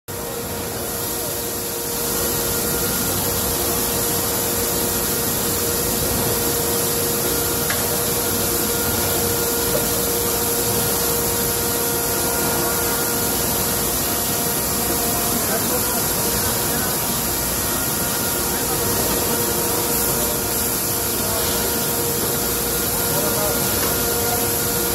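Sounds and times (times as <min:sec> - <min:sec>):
machinery humming: 0:00.1 - 0:24.9.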